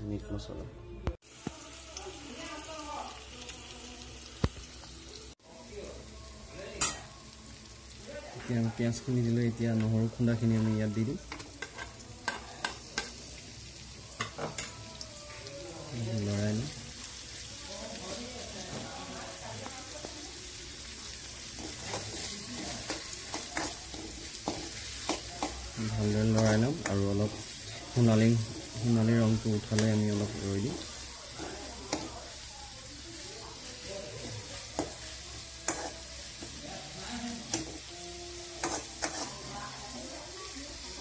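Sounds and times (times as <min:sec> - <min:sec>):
onions sizzling in hot oil: 0:01.2 - 0:41.0
metal spoon clicking on pan: 0:11.3 - 0:13.2, 0:35.7 - 0:35.9.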